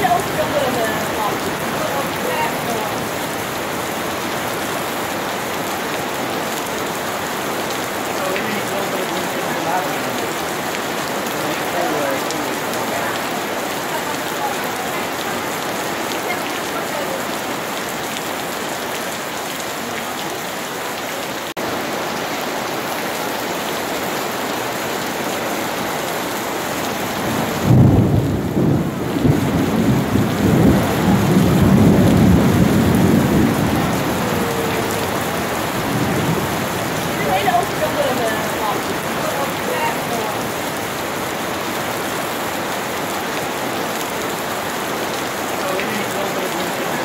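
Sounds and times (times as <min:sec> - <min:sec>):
rain falling: 0:00.0 - 0:47.0
thunder rumbling: 0:27.0 - 0:41.9.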